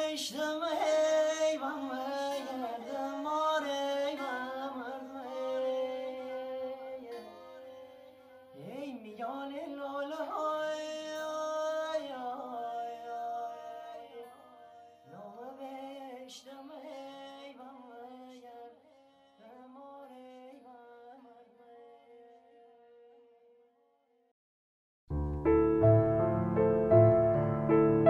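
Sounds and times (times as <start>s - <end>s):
man singing folk melody: 0.0s - 18.8s
plucked lute: 4.3s - 8.7s.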